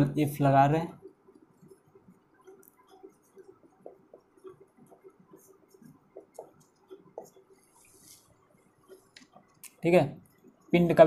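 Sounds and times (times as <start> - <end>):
pen scratching on a board: 1.4 - 8.3.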